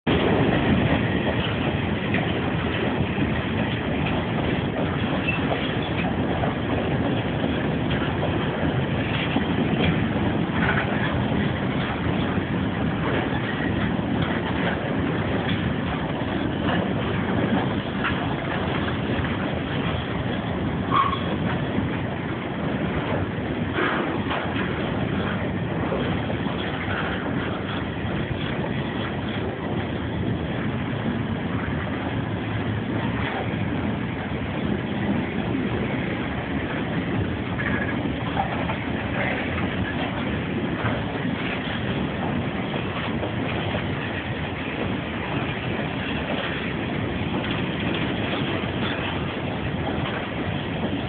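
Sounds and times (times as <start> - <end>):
freight train wheels on rails: 0.0 - 51.0
clicks over rail joints: 0.1 - 51.0
train wheel squeal: 3.5 - 8.4, 19.6 - 21.9.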